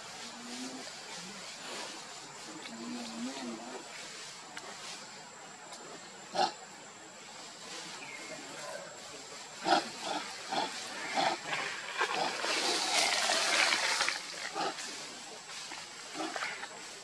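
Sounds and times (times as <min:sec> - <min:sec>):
rustling hiss: 0:00.0 - 0:17.0
monkeys grunting: 0:09.6 - 0:15.0.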